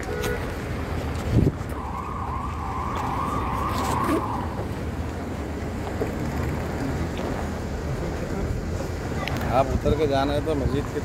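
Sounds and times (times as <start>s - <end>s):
vehicle siren wailing: 1.6s - 4.8s.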